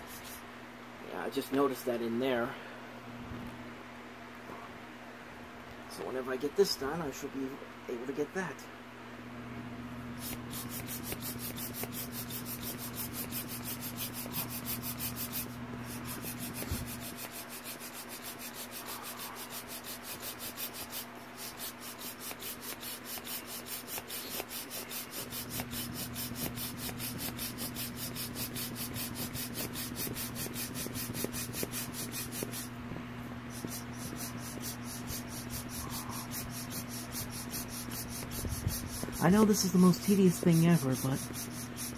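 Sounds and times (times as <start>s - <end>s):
steady low hum: 0.0s - 41.9s
plastic rubbing against microphone: 10.2s - 41.9s.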